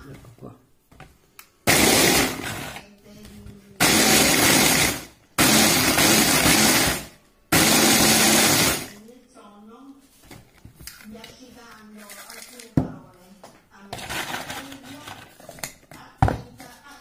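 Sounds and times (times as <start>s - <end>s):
blender grinding biscuits: 1.7s - 2.8s, 3.8s - 9.0s.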